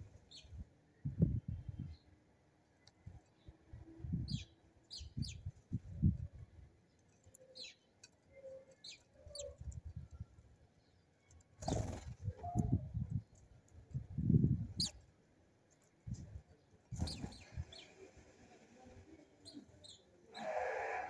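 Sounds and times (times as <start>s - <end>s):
sparrows chirping: 0.2s - 0.6s, 2.8s - 6.1s, 6.8s - 13.5s, 14.2s - 15.1s, 16.4s - 18.1s, 19.3s - 20.6s.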